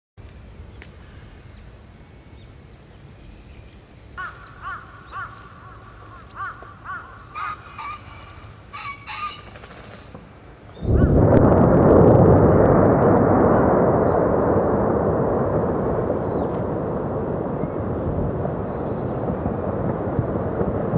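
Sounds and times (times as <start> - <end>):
low steady rumble: 0.2 - 20.9
crow cawing: 4.2 - 9.5.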